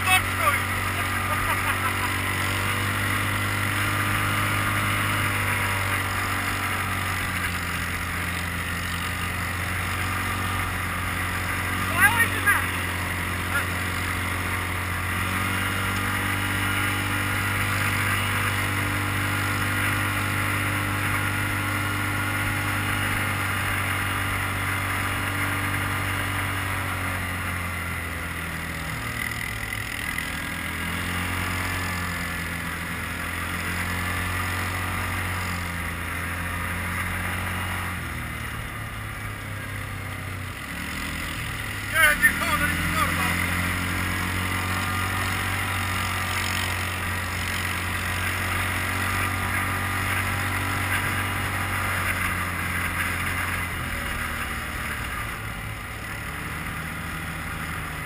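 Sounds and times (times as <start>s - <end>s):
quad bike engine running: 0.0s - 58.0s.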